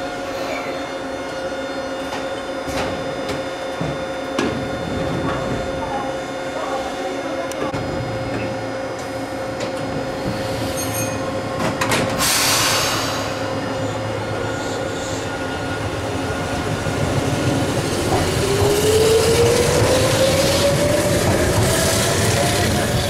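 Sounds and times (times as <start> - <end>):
electric train motors whining: 4.4 - 23.0
hiss of air: 12.2 - 13.6.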